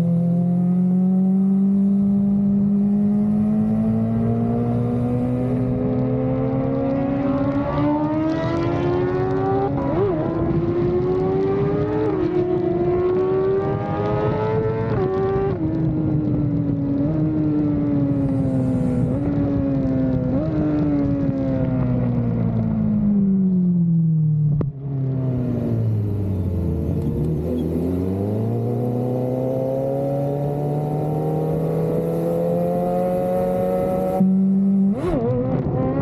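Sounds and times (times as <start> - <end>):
motorcycle engine accelerating: 0.0 - 36.0.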